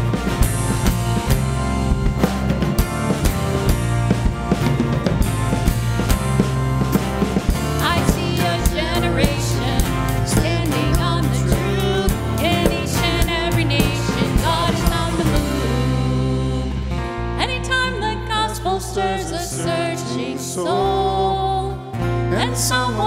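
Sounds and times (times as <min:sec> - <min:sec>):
low bass line: 0:00.0 - 0:18.5
worship band playing: 0:00.0 - 0:23.0
lead singer singing: 0:07.8 - 0:23.0.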